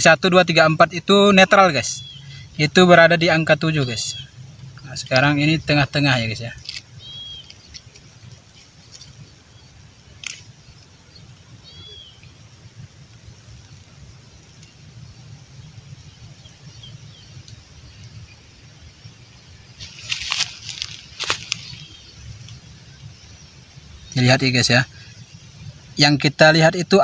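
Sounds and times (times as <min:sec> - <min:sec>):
steady low rumble: 0:00.0 - 0:11.7
high bird chirps: 0:00.5 - 0:09.8, 0:10.4 - 0:12.5.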